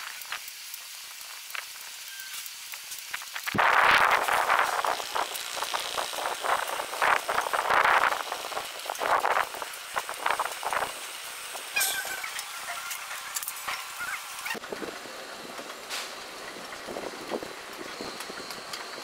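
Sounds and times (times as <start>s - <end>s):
spices rattling in rotating drum: 0.0s - 19.0s
brief high squeak: 11.7s - 13.1s.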